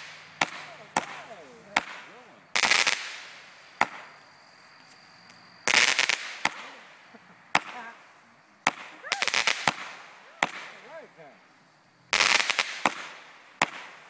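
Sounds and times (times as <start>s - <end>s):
rapid firework crackling: 0.0s - 4.3s, 5.6s - 11.3s, 12.0s - 14.0s
firework bangs: 0.0s - 4.4s, 5.3s - 14.0s.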